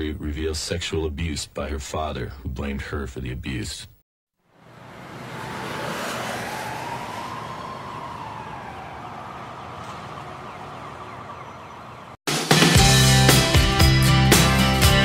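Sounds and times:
street ambience: 0:04.5 - 0:12.2
siren wailing: 0:04.7 - 0:12.2
rock music with drums and guitar: 0:12.3 - 0:15.0.

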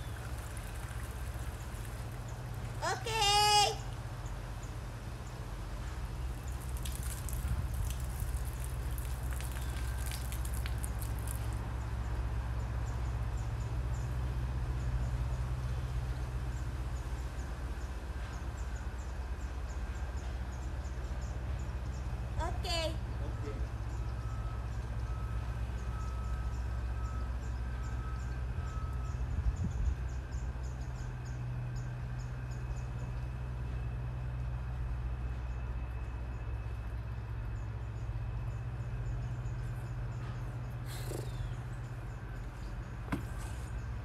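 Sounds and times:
birds chirping: 0:39.0 - 0:44.0.

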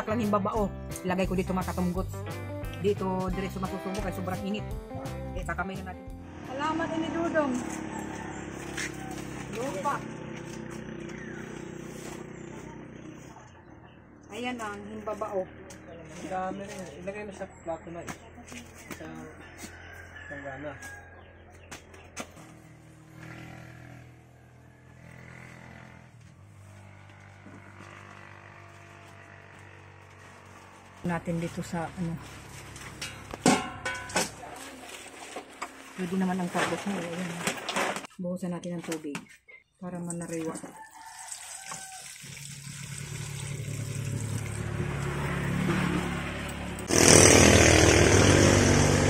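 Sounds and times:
faint engine running: 0:05.0 - 0:19.6, 0:21.2 - 0:36.0, 0:42.6 - 0:49.0.

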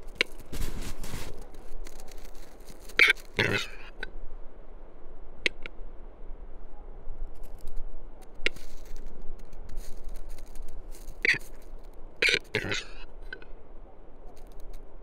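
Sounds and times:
scratchy bird rattle: 0:00.0 - 0:03.8.

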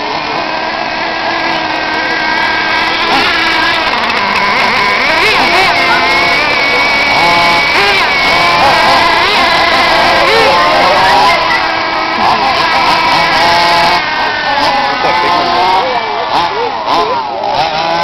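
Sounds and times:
nitro engine revving: 0:00.0 - 0:18.0
small nitro engine idling: 0:00.0 - 0:18.0.

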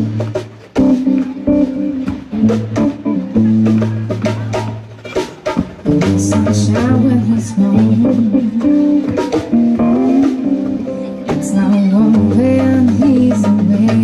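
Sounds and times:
jazz band playing: 0:00.0 - 0:14.0
woman singing: 0:05.9 - 0:09.4, 0:11.2 - 0:14.0.

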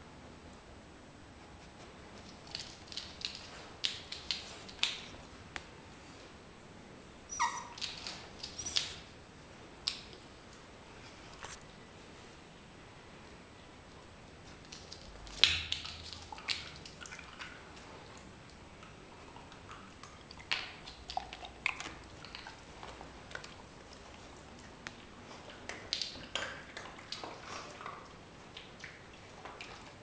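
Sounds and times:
dog licking and chewing: 0:02.2 - 0:05.2, 0:14.6 - 0:30.0.

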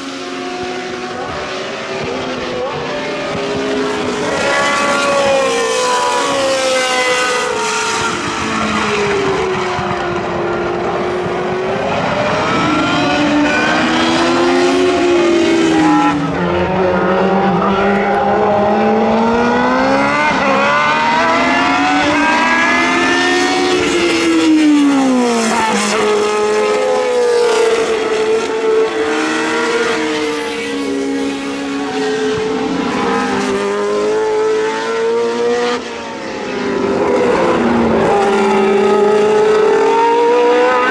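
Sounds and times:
racing car engines revving: 0:00.0 - 0:40.9
race car passing close: 0:00.2 - 0:40.9.

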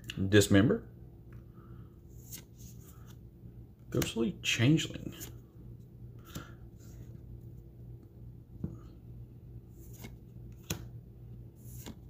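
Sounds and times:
faint low hum: 0:00.0 - 0:12.0
cards rubbing and flipping: 0:02.1 - 0:03.2, 0:04.8 - 0:05.5, 0:09.7 - 0:10.9, 0:11.5 - 0:12.0.

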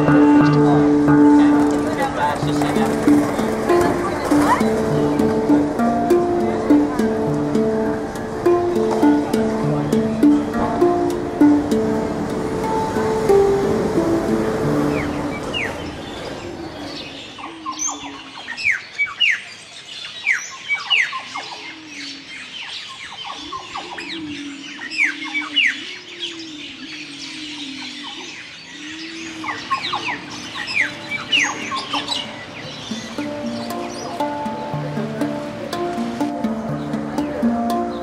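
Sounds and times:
birds chirping and squawking: 0:14.0 - 0:38.0.

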